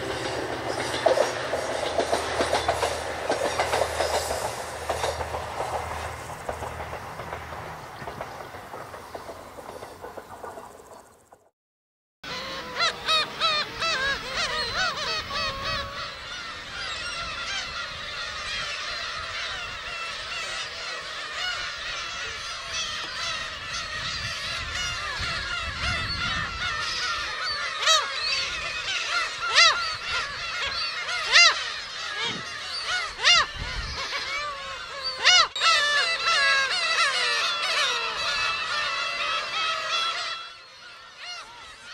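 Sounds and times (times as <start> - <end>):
gulls calling: 0.0 - 10.8, 12.2 - 41.9.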